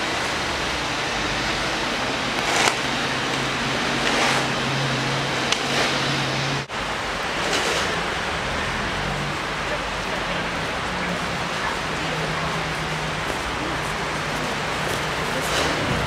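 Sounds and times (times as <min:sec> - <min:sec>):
steady snowstorm hiss: 0:00.0 - 0:16.0
vehicle engine hum: 0:00.0 - 0:16.0
brief scraping sounds: 0:02.4 - 0:02.9, 0:04.0 - 0:04.6.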